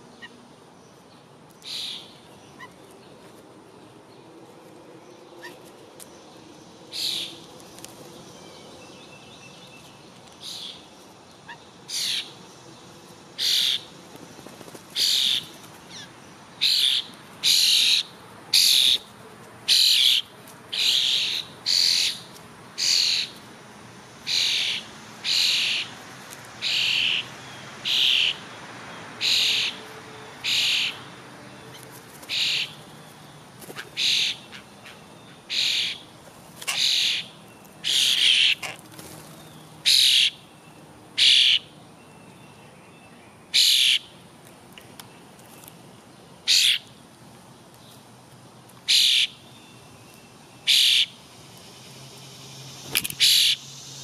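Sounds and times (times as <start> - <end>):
bird harsh call: 11.5 - 12.3, 13.4 - 13.9, 19.7 - 22.2, 22.8 - 23.4, 24.3 - 25.9, 26.6 - 28.4, 29.2 - 29.8, 30.4 - 31.0, 32.3 - 32.8, 33.8 - 36.0, 36.7 - 38.8, 39.8 - 40.4, 41.2 - 41.7, 43.5 - 44.1, 46.5 - 46.8, 48.9 - 49.4, 50.6 - 51.2, 53.2 - 53.6.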